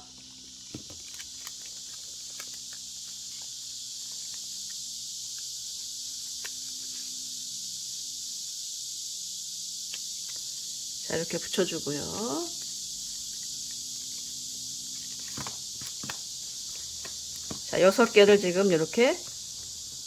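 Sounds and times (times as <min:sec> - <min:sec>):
steady high hiss: 0:00.0 - 0:20.0
paper clicks and rustles: 0:00.6 - 0:05.4, 0:14.9 - 0:18.2.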